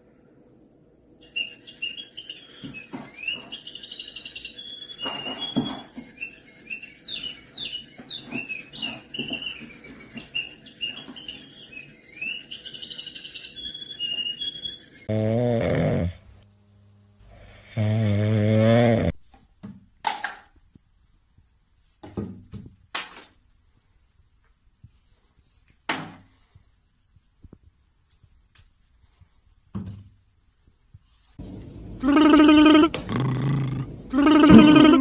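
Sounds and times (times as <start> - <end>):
cat snoring loudly: 15.1 - 16.2, 17.3 - 19.1, 32.9 - 34.7
plastic bottles knocking and clattering: 19.6 - 20.6.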